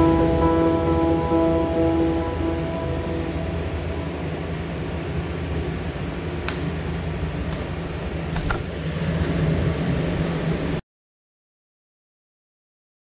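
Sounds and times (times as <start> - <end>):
low mechanical hum with hiss: 1.1 - 10.8.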